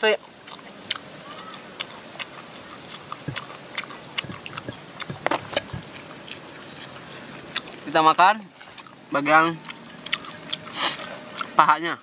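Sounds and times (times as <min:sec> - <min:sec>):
chewing clicks and smacks: 0:00.1 - 0:11.7
dull thumps: 0:03.2 - 0:03.6, 0:04.2 - 0:06.0.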